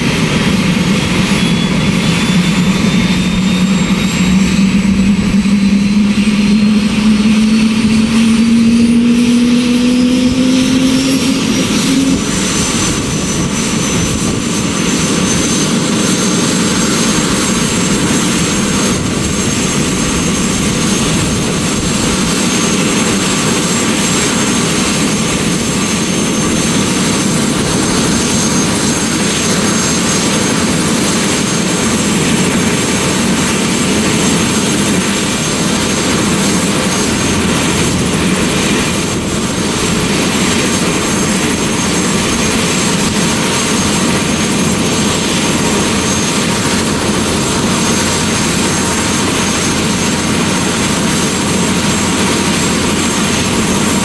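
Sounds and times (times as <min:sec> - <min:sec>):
rising tone: 0:00.0 - 0:23.8
helicopter rotor noise: 0:00.0 - 0:54.0
helicopter turbine whine: 0:00.0 - 0:54.0.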